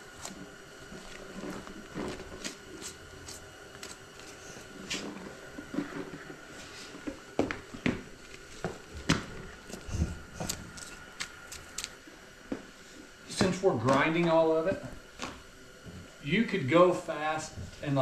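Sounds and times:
scrapes and handling noises: 0:00.1 - 0:12.0.

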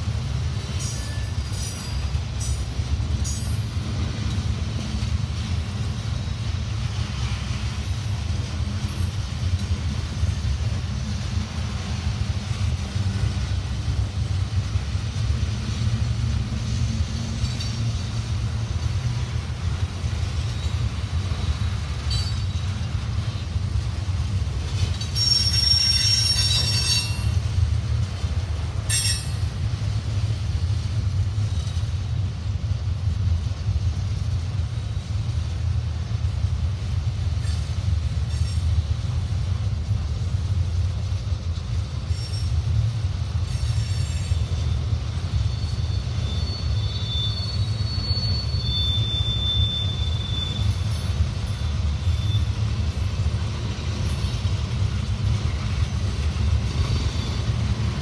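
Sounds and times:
freight cars rumbling on rails: 0:00.0 - 0:58.0
high-pitched wheel squeal: 0:25.2 - 0:27.3, 0:43.5 - 0:52.7.

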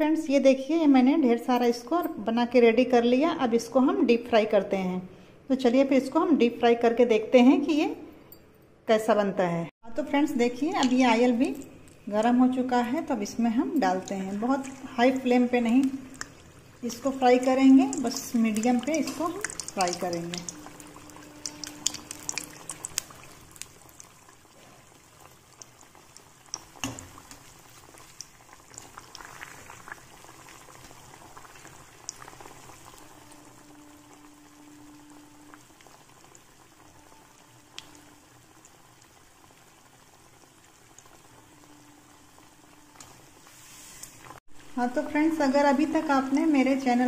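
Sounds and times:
oil bubbling and sizzling: 0:10.1 - 0:47.0.

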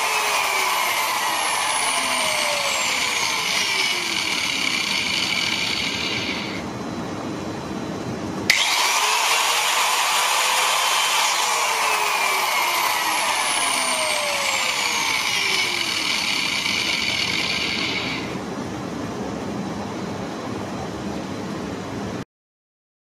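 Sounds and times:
angle grinder motor whine: 0:00.0 - 0:06.7, 0:08.4 - 0:18.4.

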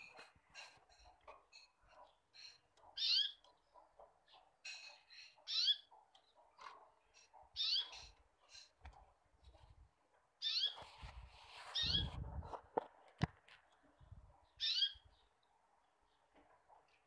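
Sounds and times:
bird chirping: 0:00.0 - 0:08.8, 0:10.4 - 0:11.0, 0:11.6 - 0:12.2, 0:13.5 - 0:17.0.

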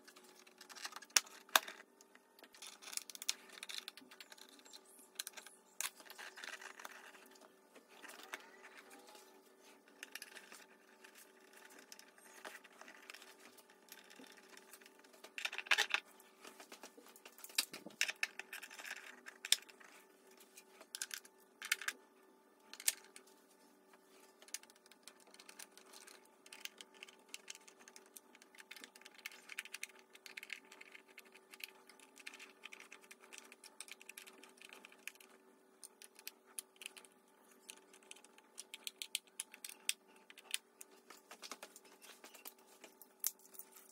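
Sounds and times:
faint steady hum: 0:00.0 - 0:43.9.

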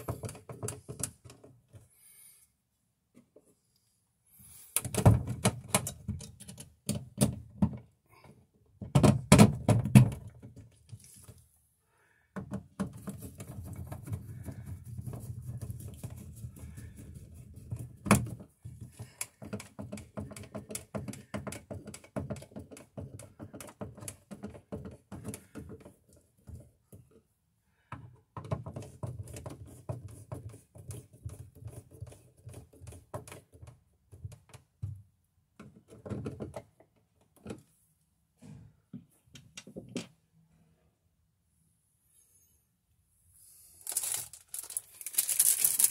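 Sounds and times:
knocks and rattles: 0:08.8 - 0:10.8.

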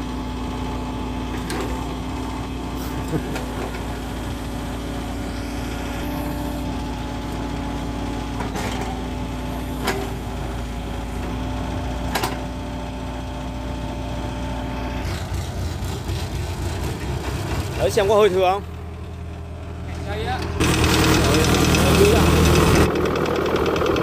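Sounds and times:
excavator diesel engine running: 0:00.0 - 0:24.0
hydraulic whine: 0:02.8 - 0:12.5.

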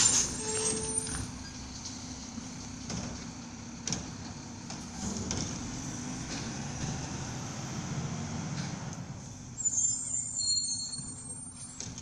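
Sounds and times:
knocks and clatters: 0:02.8 - 0:05.6.

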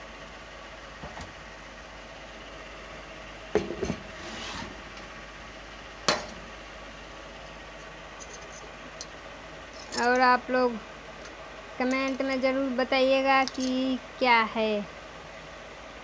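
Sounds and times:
steady background noise: 0:04.8 - 0:16.0.

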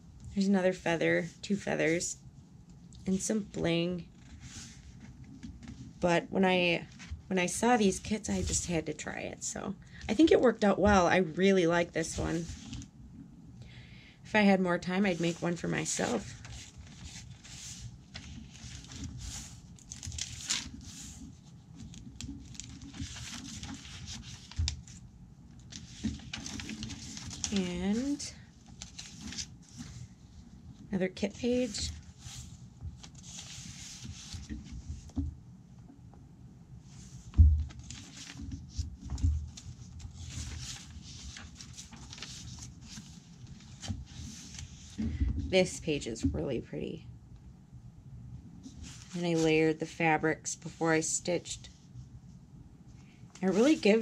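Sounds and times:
pages rustling and crinkling: 0:04.1 - 0:06.0, 0:06.8 - 0:08.9, 0:12.0 - 0:12.9, 0:15.0 - 0:35.3, 0:36.8 - 0:45.2, 0:48.6 - 0:49.6, 0:53.3 - 0:54.0
sharp page flips: 0:37.2 - 0:45.0.

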